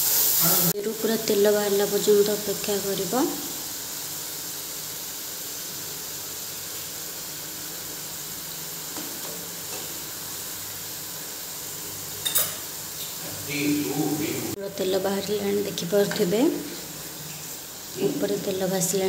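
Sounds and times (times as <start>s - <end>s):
paste sizzling in oil: 0.0s - 19.0s.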